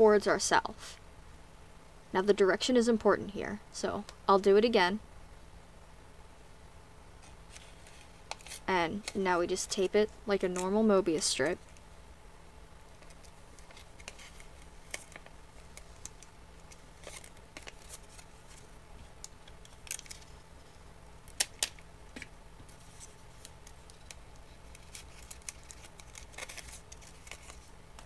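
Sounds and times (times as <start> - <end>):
paper rustling and crinkling: 7.2 - 11.9, 12.9 - 20.9, 22.6 - 28.0.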